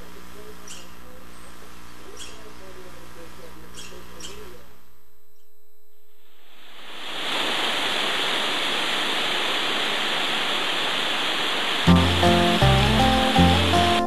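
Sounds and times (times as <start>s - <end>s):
stream water rushing: 6.8s - 14.0s
backing music with bass line: 11.9s - 14.0s.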